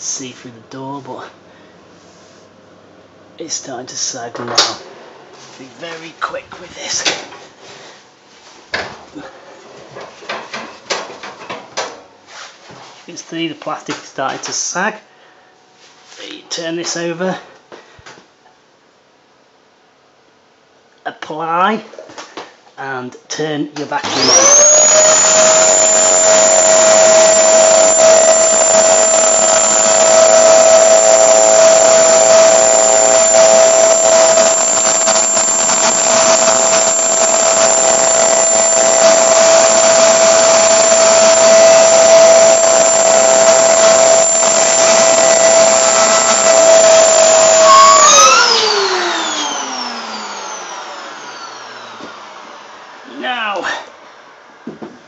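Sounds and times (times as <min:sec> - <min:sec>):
vacuum cleaner whining: 0:24.0 - 0:54.7.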